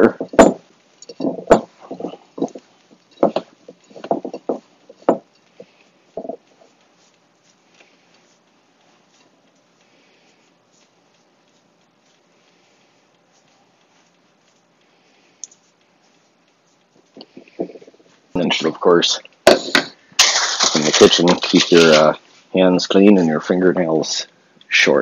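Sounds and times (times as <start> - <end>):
hands rubbing crumbly mixture: 4.6 - 19.2.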